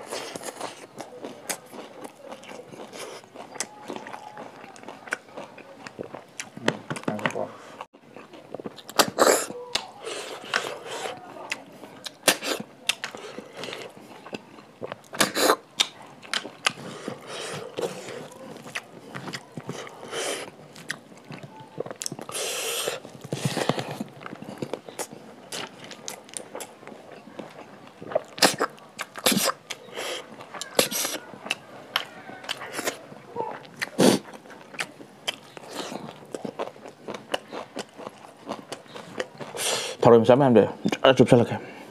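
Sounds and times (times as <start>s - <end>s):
chewing: 0.0s - 40.0s
slurping snails from shells: 0.0s - 40.1s
wet lip smacks and clicks: 11.5s - 16.8s, 28.1s - 33.0s.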